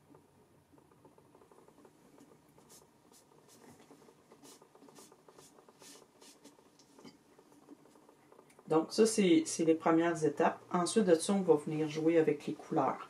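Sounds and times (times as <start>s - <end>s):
pencil rubbing strokes: 1.5s - 8.2s.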